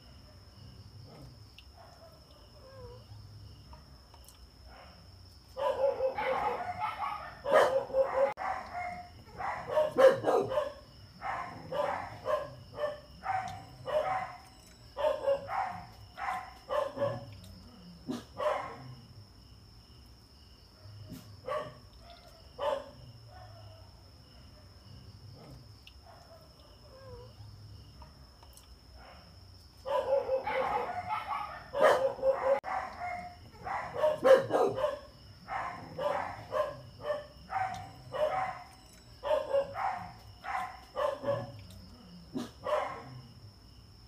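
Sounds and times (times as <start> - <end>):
dog barking: 5.6 - 17.4, 18.0 - 19.0, 20.8 - 24.8, 29.0 - 41.6, 42.3 - 43.2.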